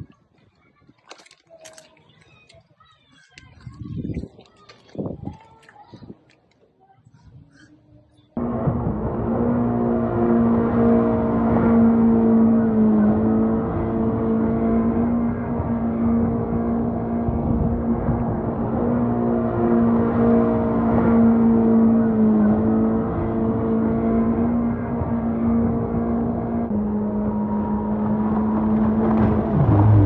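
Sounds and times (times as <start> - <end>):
jet boat engine droning whine: 8.4 - 30.0.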